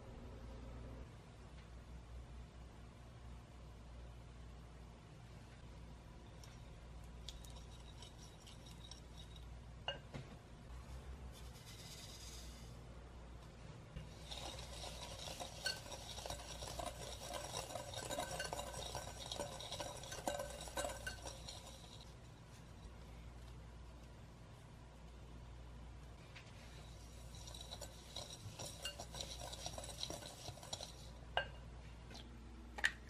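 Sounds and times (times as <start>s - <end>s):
whisk stirring in glass bowl: 7.1s - 10.0s, 11.3s - 12.8s, 13.9s - 23.0s, 26.5s - 31.6s
sugar pouring hiss: 11.3s - 12.8s, 14.0s - 22.7s, 26.6s - 31.3s.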